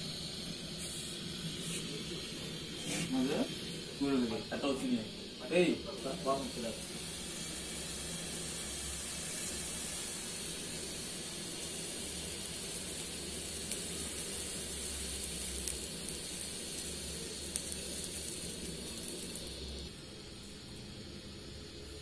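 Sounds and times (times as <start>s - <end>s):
gas burner hissing: 0.0s - 22.0s.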